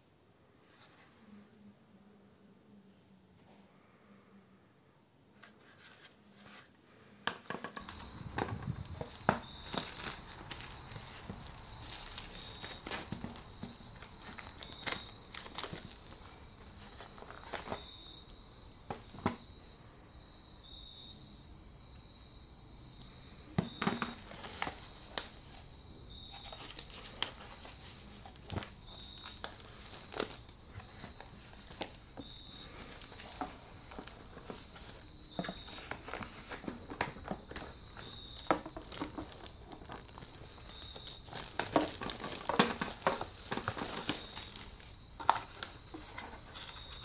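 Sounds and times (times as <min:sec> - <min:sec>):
plastic wrapping crinkling: 0:07.5 - 0:17.9, 0:23.9 - 0:25.6, 0:26.3 - 0:47.0.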